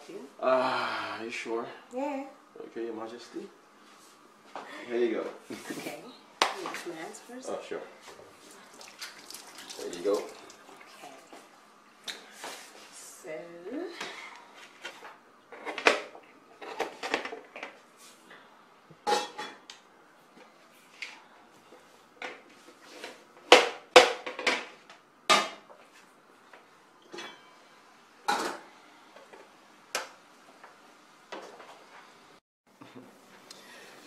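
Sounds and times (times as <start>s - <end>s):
dishes and utensils clinking: 19.0s - 19.6s, 27.0s - 27.5s.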